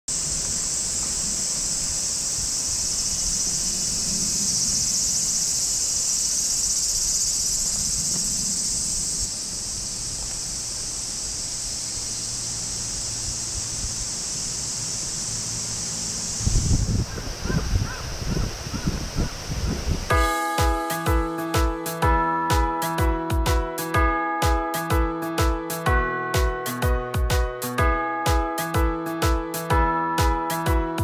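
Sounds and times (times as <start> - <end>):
cicadas buzzing: 0.1 - 31.0.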